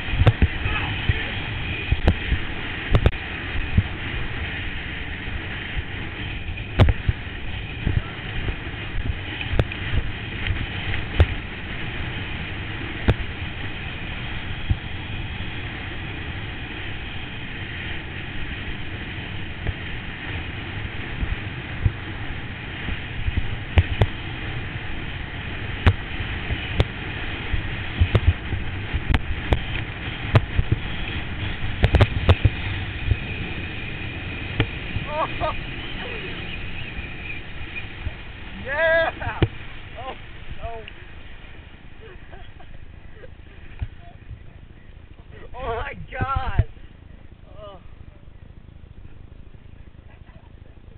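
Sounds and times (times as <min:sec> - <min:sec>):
rushing wind and water: 0:00.0 - 0:47.9
tube thumping and slapping water: 0:00.2 - 0:01.2, 0:28.0 - 0:30.9.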